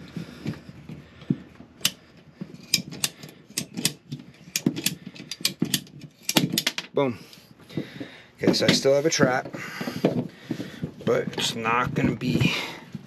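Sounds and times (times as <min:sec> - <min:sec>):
pipe cutter ratchet clicking: 0:02.6 - 0:06.4.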